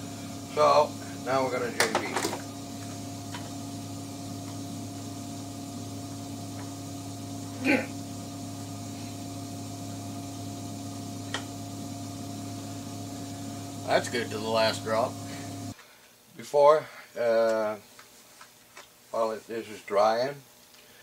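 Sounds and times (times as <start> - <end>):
shop machinery humming: 0.0 - 15.8.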